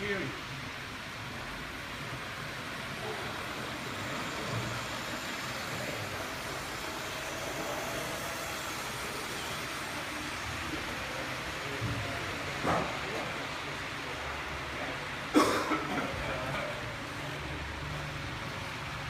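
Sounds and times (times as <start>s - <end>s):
model train motor whirring: 1.8s - 13.7s.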